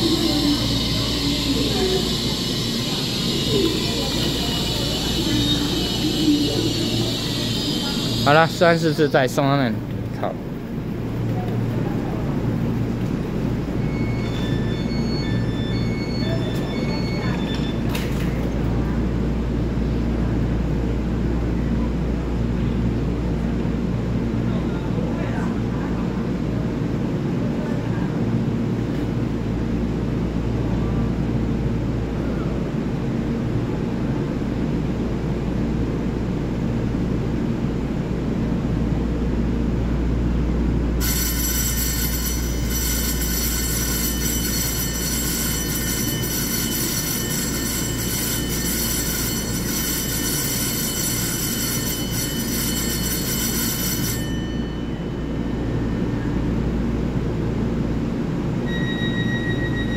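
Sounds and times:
platform departure bell ringing: 0:00.0 - 0:37.4, 0:38.2 - 0:59.9
electric train low hum: 0:00.0 - 0:59.9.

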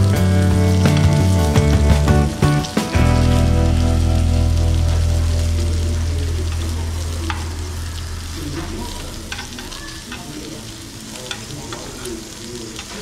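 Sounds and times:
pork sizzling on grill: 0:00.0 - 0:13.0
low drone: 0:03.0 - 0:10.3.

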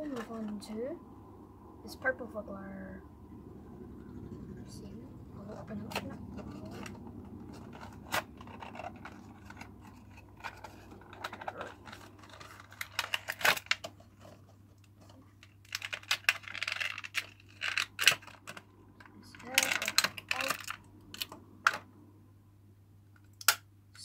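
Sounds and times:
crinkly packaging rustling: 0:05.5 - 0:21.8
packaging clicks and snaps: 0:05.9 - 0:21.9, 0:23.2 - 0:23.7.

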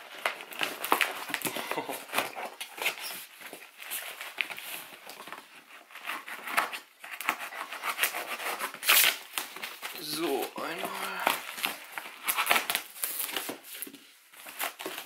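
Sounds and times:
plastic wrap crinkling: 0:00.0 - 0:07.2, 0:08.6 - 0:15.0
scraping against cardboard: 0:01.8 - 0:09.2.

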